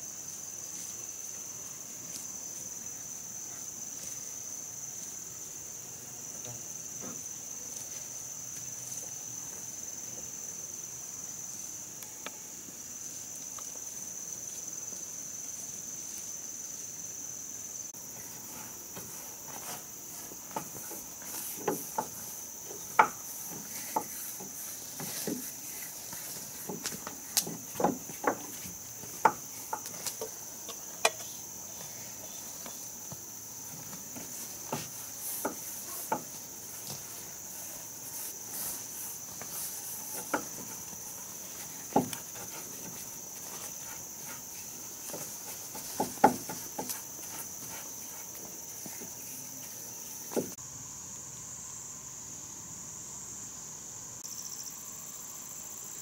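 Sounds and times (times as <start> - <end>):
insect chorus: 0.0 - 56.0
knocks on wooden boards: 21.6 - 25.5, 26.6 - 30.0, 40.2 - 40.8, 41.8 - 42.6, 45.1 - 47.4.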